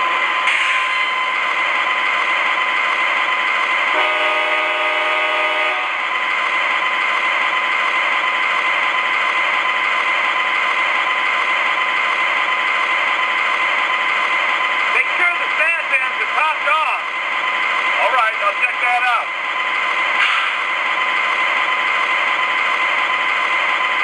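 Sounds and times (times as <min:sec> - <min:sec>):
model train diesel sound with whine: 0:00.0 - 0:24.0
train horn blast: 0:03.9 - 0:06.1.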